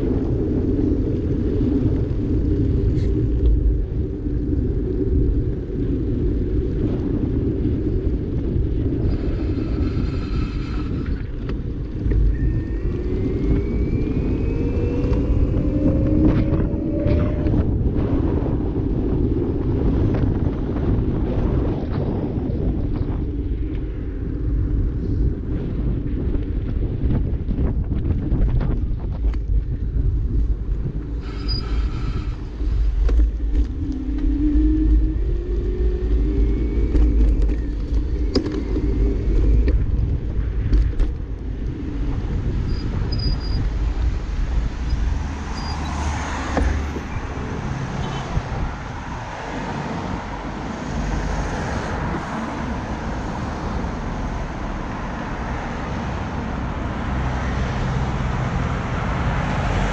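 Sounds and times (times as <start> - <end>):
wind rumbling on microphone: 0.0 - 59.9
cars driving past: 41.7 - 59.9.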